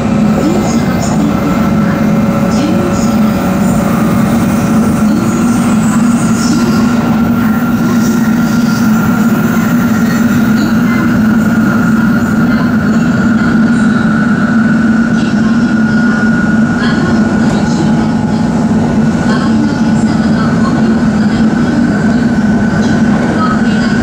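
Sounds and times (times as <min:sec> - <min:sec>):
train rumbling: 0:00.0 - 0:24.0.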